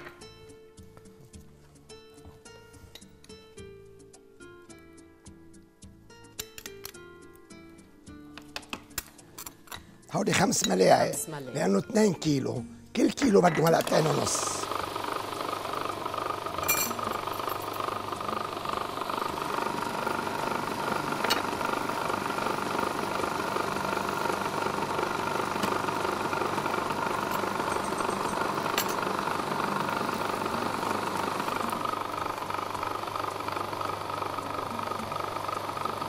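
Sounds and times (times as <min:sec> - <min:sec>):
food processor motor running: 0:13.2 - 0:36.0.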